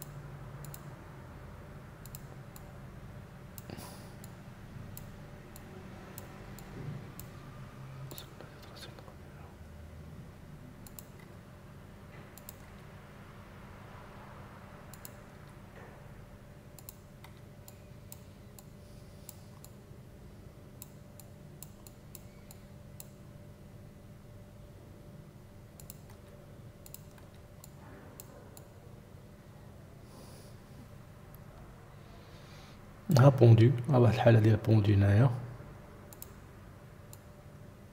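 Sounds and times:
computer mouse clicking: 0.0 - 0.9, 2.0 - 2.7, 3.6 - 7.4, 8.0 - 8.8, 10.8 - 11.4, 12.4 - 12.9, 14.9 - 15.6, 16.8 - 19.8, 20.8 - 23.2, 25.8 - 28.8, 36.1 - 36.4, 37.1 - 37.3
steady low hum: 0.0 - 37.9.

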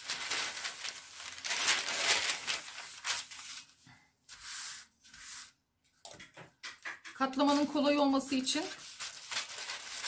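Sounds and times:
paper rustling and crinkling: 0.0 - 5.4, 7.4 - 10.0.

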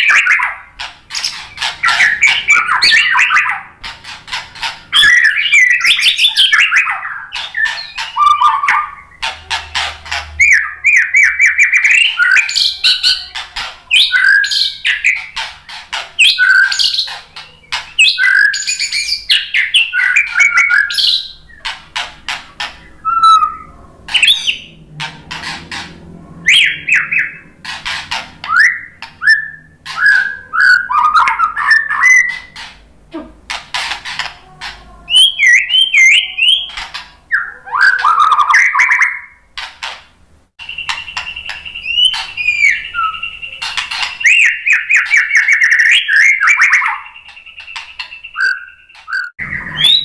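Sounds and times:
bird harsh chattering: 0.0 - 40.0, 40.6 - 50.0
bird singing whistled phrases: 1.2 - 3.7, 4.9 - 9.2, 10.4 - 15.3, 16.2 - 21.6, 23.0 - 24.7, 28.5 - 32.6, 35.1 - 39.4, 40.6 - 50.0.

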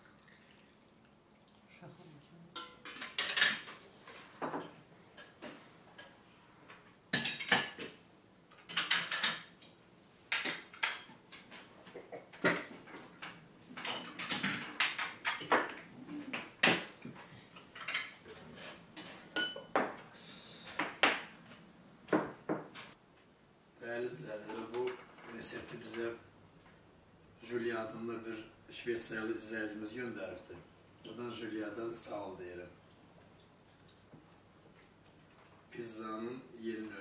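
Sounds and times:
glasses clinking on saucers: 12.4 - 12.8, 19.0 - 20.0
cutlery knocking on plates: 12.4 - 13.0.

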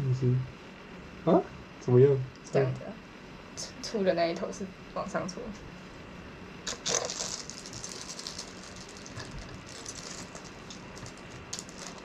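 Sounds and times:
plastic bag crinkling: 6.7 - 12.0.

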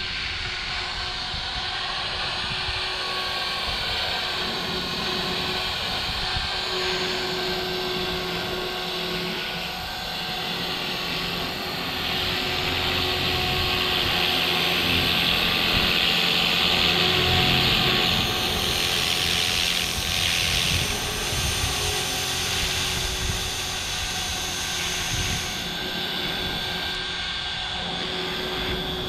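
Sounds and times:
helicopter rotor whine: 0.0 - 29.0.

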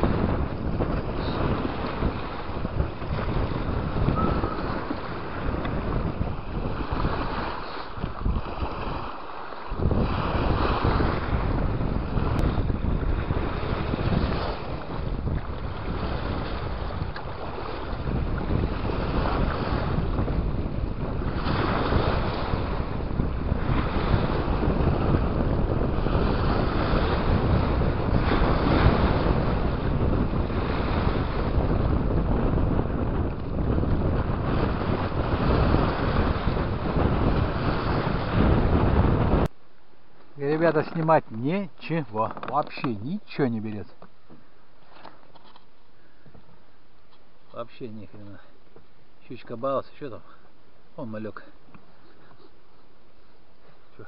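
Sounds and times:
waves on choppy water: 0.0 - 39.6
wind noise on microphone: 0.0 - 54.0.

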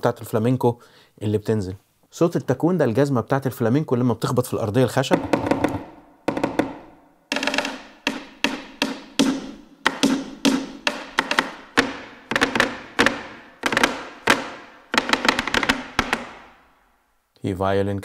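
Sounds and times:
flamenco shoes stamping on wood: 5.1 - 16.6.

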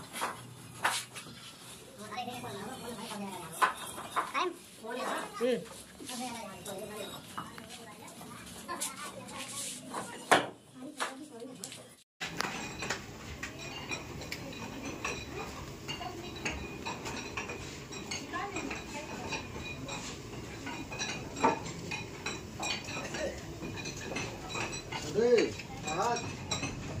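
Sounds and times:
metal clinking and knocking: 12.3 - 27.0.

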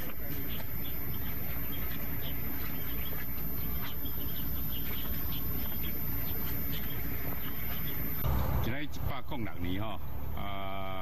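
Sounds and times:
insects chirping: 0.0 - 8.2
high steady whine: 0.0 - 11.0.

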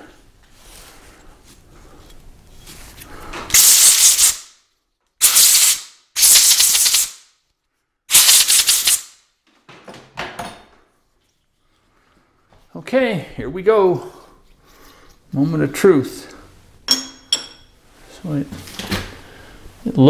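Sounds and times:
compressed air blasts: 3.5 - 4.6, 5.2 - 7.3, 8.1 - 9.2.

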